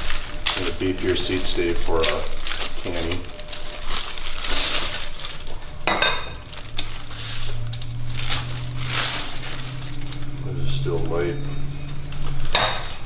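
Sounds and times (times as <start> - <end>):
wrapping rustling: 0.0 - 13.0
steel tubes clinking and knocking: 11.2 - 13.0.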